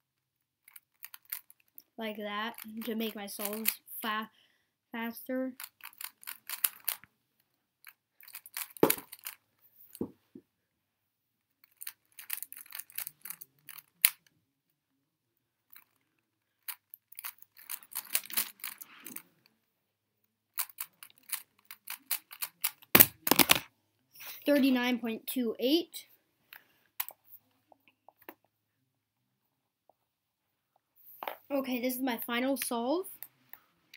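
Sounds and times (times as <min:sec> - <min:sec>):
plastic puzzle cube clicking: 0:00.6 - 0:01.6, 0:03.4 - 0:03.8, 0:05.6 - 0:07.1, 0:08.2 - 0:09.4, 0:11.6 - 0:14.3, 0:15.8 - 0:19.2, 0:20.6 - 0:23.7.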